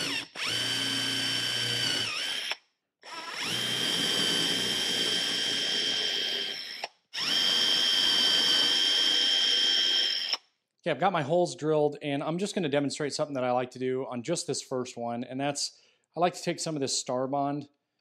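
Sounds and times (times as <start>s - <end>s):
cordless drill whining: 0.0s - 10.4s.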